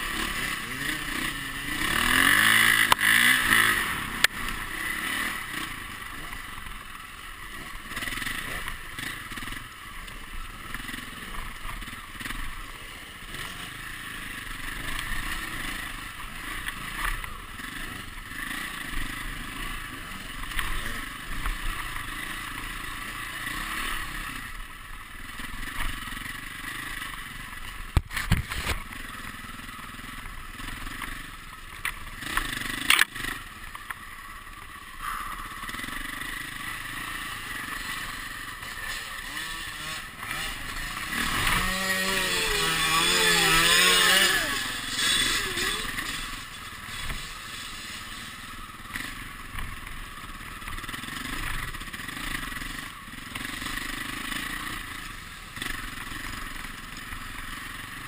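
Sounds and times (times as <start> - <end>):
dirt bike engine revving: 0.0 - 58.0
steady rushing hiss: 44.4 - 58.0.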